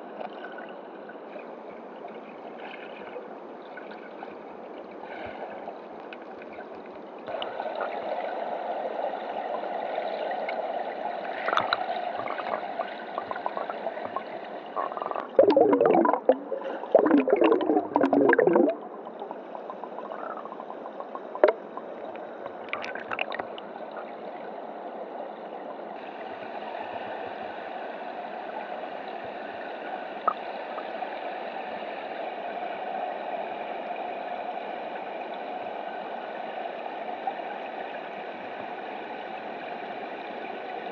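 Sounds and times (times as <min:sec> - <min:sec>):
water gurgling and bubbling: 0:12.2 - 0:21.8, 0:22.7 - 0:23.6.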